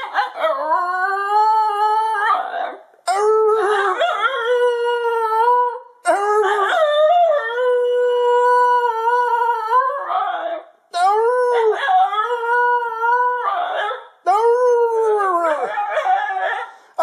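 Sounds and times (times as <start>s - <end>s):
dog howling: 3.6s - 10.6s, 11.2s - 16.7s.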